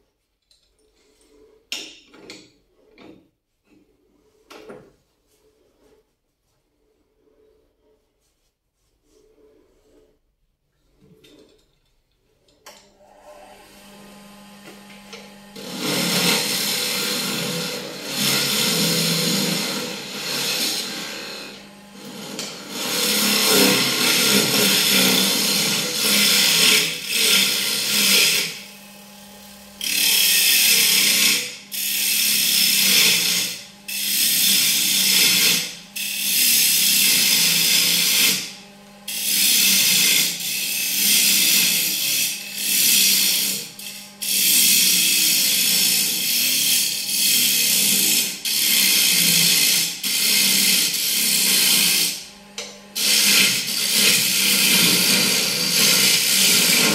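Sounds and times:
lathe motor humming: 0:13.1 - 0:56.9
tool hissing against spinning wood: 0:15.6 - 0:56.9.

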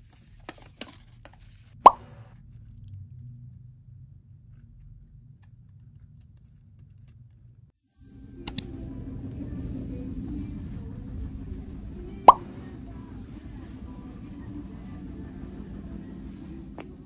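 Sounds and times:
low room hum: 0:00.0 - 0:17.0
steady rumble and hiss: 0:07.5 - 0:17.0.

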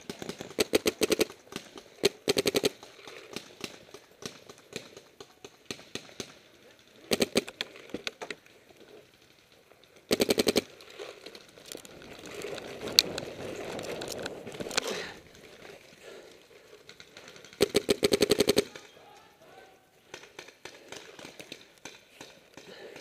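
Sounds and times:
paintball marker firing: 0:00.0 - 0:06.4, 0:07.1 - 0:07.6, 0:17.6 - 0:18.9
rustling and scuffing on dirt: 0:10.7 - 0:16.8.

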